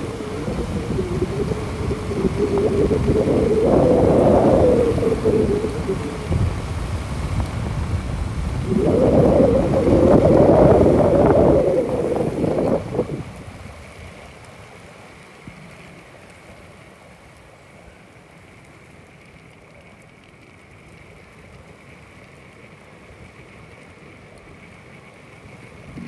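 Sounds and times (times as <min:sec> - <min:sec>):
faint high hum: 0:00.0 - 0:06.8
wind on microphone: 0:00.0 - 0:13.8, 0:25.7 - 0:26.0
small wheels rolling on asphalt: 0:00.0 - 0:26.0.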